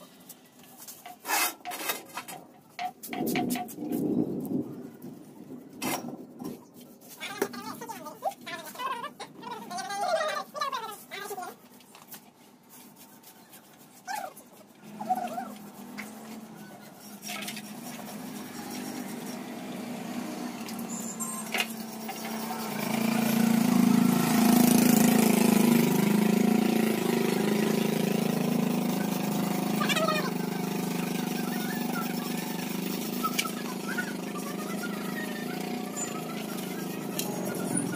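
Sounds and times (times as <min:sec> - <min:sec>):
engine running: 0:17.5 - 0:37.9.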